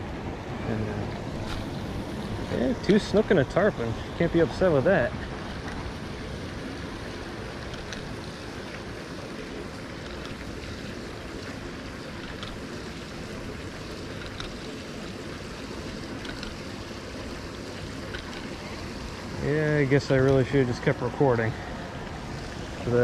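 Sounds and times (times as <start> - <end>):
water rushing through spillway: 0.0 - 23.0.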